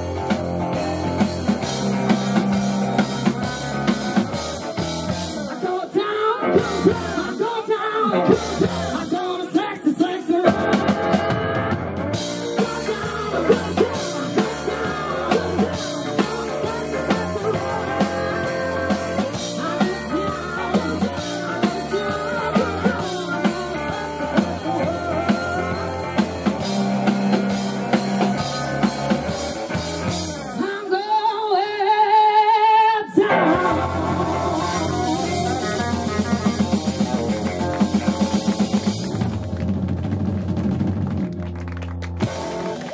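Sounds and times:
live rock band playing: 0.0s - 31.5s, 33.2s - 42.9s
person singing: 2.6s - 27.3s, 30.4s - 38.8s.

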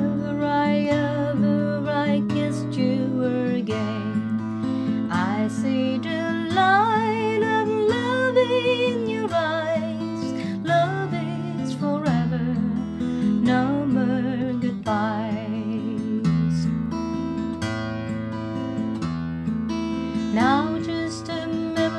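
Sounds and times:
acoustic guitar chords: 0.0s - 21.9s
person singing with vibrato: 20.3s - 21.9s.

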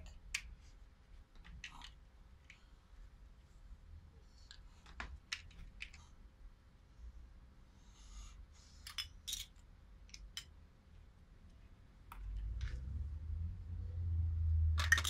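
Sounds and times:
plastic toy blocks clicking: 14.8s - 15.0s.

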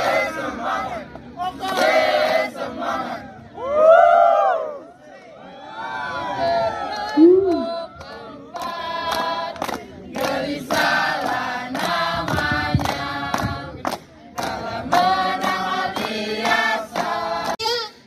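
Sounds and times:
children's choir singing: 0.0s - 3.2s, 7.0s - 13.7s, 14.4s - 17.8s.

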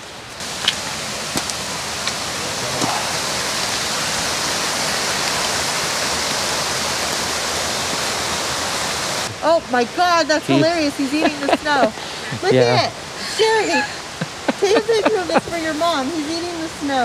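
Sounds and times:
creek water rushing: 0.0s - 17.0s.

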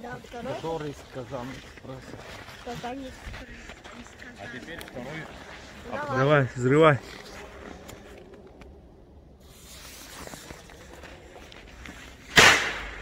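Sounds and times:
firecracker bang: 12.3s - 13.0s.

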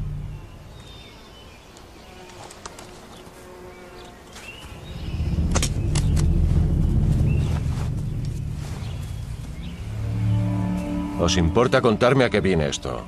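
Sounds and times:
loud low rumble: 0.0s - 0.8s, 4.6s - 12.5s
bird chirps: 0.0s - 2.3s, 3.7s - 12.1s
sharp clicks: 5.3s - 6.4s.

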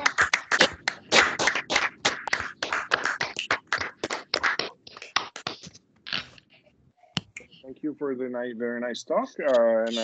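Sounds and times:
people clapping over a video call: 0.0s - 6.3s.

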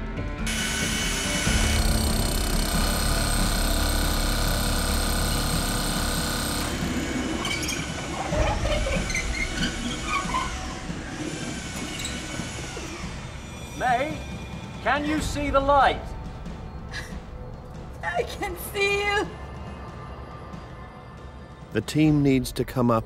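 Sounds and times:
power drill grinding into concrete: 0.5s - 8.1s.

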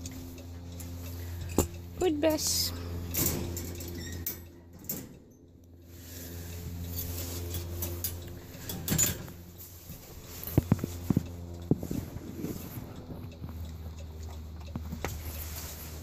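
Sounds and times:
van engine idling: 0.0s - 16.0s
sharp clicks and knocks: 6.8s - 15.3s.

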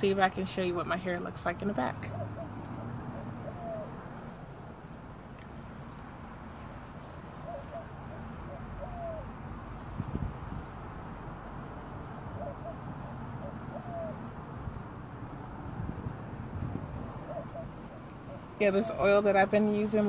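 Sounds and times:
dove cooing: 1.7s - 4.5s, 7.0s - 9.8s, 11.6s - 20.0s.

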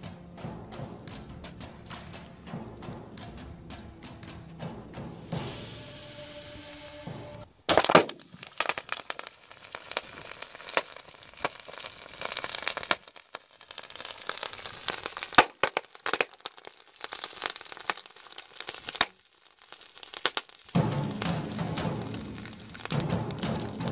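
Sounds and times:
sharp pops: 7.6s - 23.9s
sodium fizzing and crackling on water: 7.7s - 23.9s.

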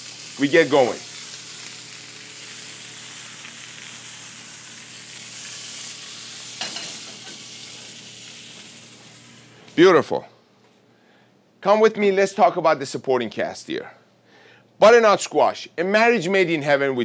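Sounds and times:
meat sizzling in a pan: 0.0s - 9.6s.

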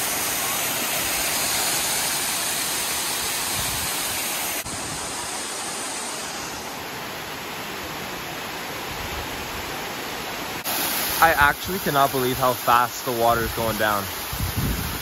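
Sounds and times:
waterfall rushing onto rock: 0.0s - 6.8s, 10.6s - 15.0s.

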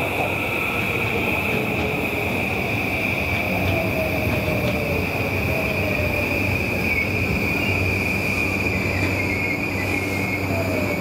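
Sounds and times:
train wheels rumbling: 0.0s - 11.0s
high-pitched squeal: 5.1s - 11.0s.

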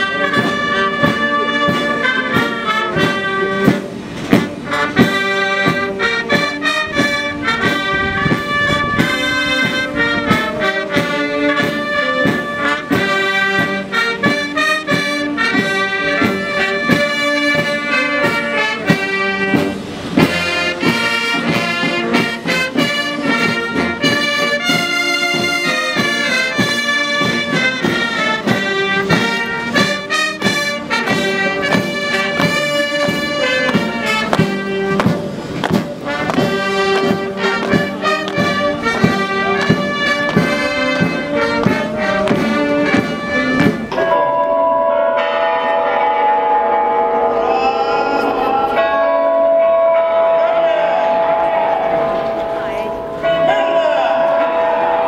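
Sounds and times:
steady drumbeat: 0.0s - 44.2s
military brass band march: 0.0s - 55.0s.

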